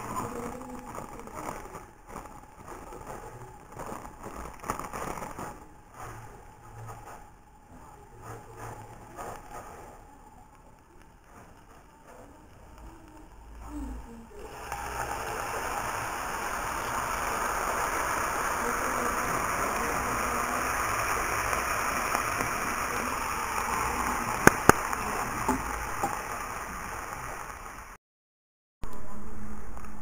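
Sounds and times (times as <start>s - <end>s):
broth pouring into frying pan: 14.4s - 28.0s.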